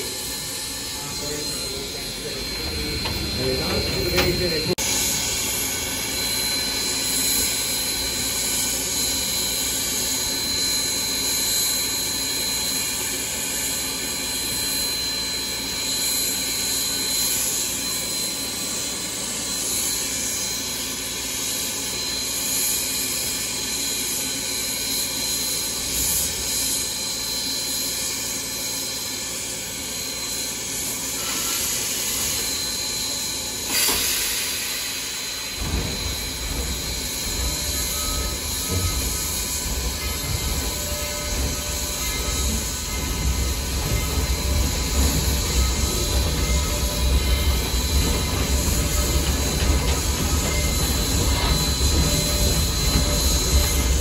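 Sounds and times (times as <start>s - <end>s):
steam hissing: 0.0s - 54.0s.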